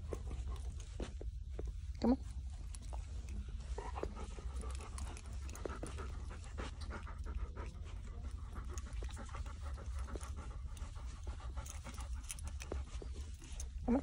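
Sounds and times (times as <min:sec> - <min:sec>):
dog panting: 0:00.0 - 0:14.0
steady low hum: 0:00.0 - 0:14.0.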